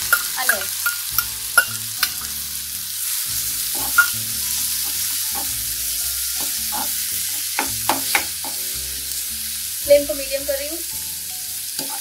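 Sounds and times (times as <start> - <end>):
onions sizzling in hot oil: 0.0 - 12.0
spatula scraping a pan: 3.6 - 5.6, 6.4 - 8.6.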